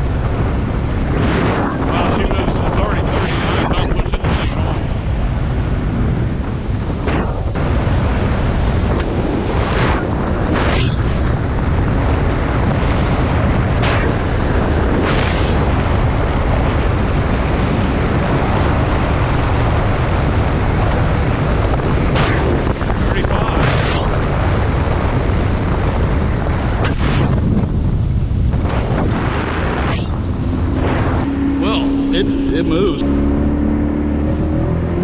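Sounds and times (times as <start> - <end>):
wind noise on microphone: 0.0 - 35.0
outboard motor running: 24.3 - 35.0.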